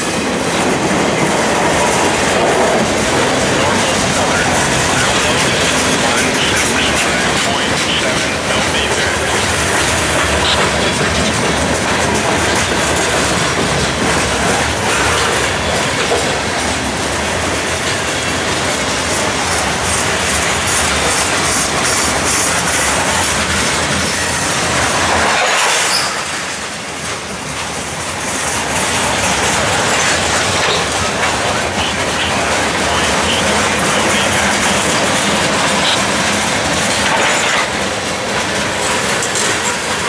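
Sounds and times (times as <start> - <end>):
steel wheels rumbling on rail: 0.0 - 40.0
high wheel squeals: 25.9 - 26.3
clicking over rail joints: 32.2 - 40.0.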